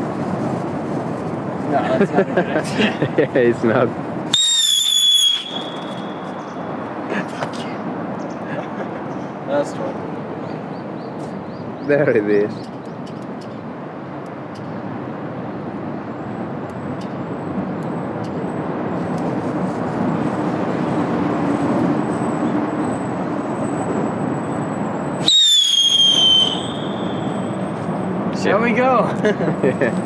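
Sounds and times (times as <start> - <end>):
city background noise: 0.0 - 30.0
loud shrill whistle: 4.3 - 6.6, 25.2 - 27.6.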